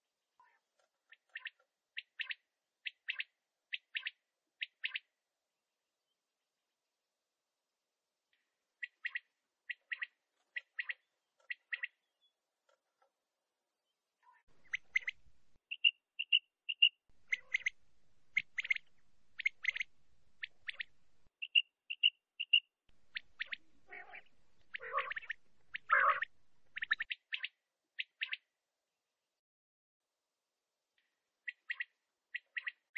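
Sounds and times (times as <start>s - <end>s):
quail calling: 14.3s - 28.4s.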